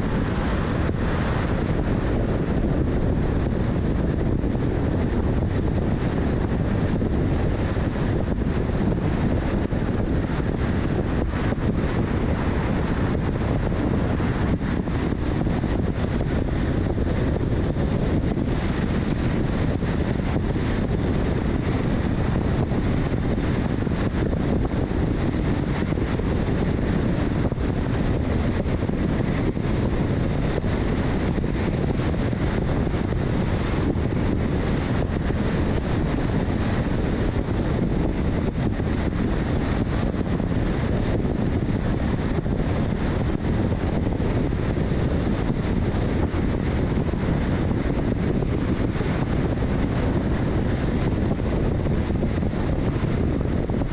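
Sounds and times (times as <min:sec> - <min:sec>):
car road and wind noise: 0:00.0 - 0:53.9
wind rumbling on microphone: 0:00.0 - 0:53.9.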